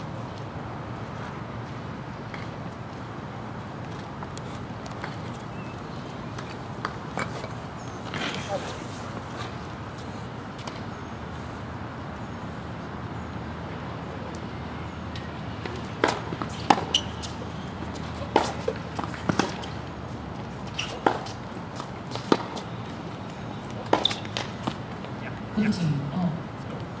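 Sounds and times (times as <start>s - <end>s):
tennis ball bounces: 15.6s - 17.3s, 17.9s - 19.8s, 20.6s - 22.7s, 23.6s - 24.8s.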